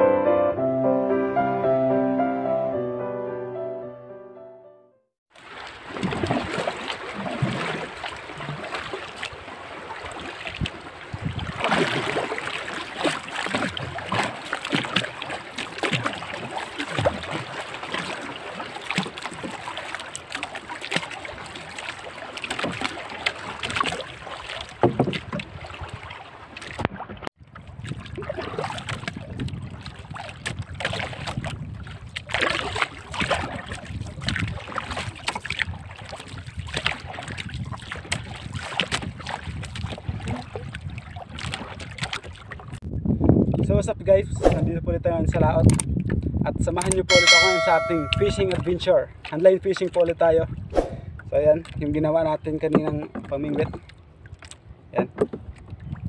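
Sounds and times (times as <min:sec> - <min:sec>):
water splashing against boat hull: 0:05.3 - 0:42.8, 0:45.3 - 0:56.0
wind buffeting microphone: 0:10.5 - 0:12.2, 0:27.4 - 0:47.1, 0:50.2 - 0:52.2, 0:54.6 - 0:56.0.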